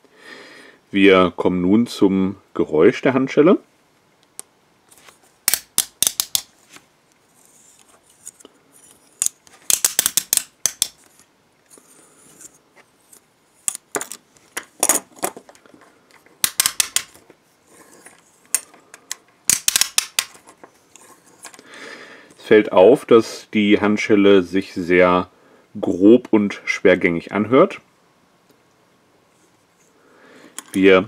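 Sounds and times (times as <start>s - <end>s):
handcuff ratcheting clicks: 9.2s - 11.0s, 18.5s - 20.3s.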